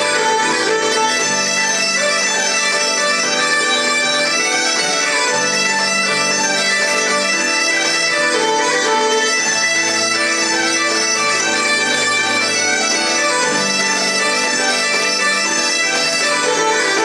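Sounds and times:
bagpipes playing: 0.0 - 17.0
fiddle: 0.0 - 17.0
keyboard: 0.0 - 17.0.

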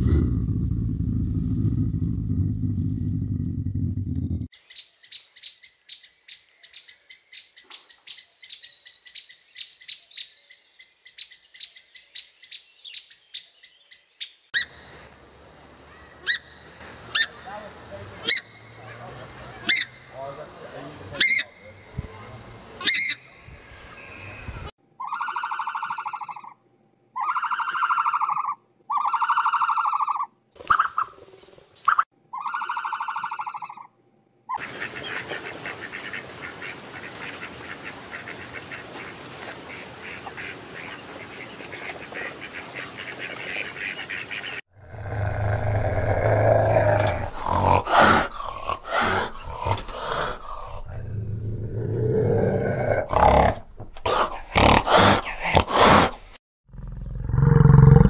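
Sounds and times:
wild cat growling: 0.0 - 4.5, 44.8 - 58.0
even pitched bird calls: 15.8 - 26.6, 31.8 - 33.9
bird honking calls: 15.9 - 22.2.

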